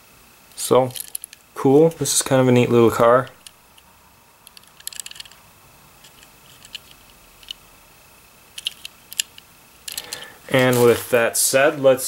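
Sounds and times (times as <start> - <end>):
toy car clicks and ticks: 8.6 - 10.2.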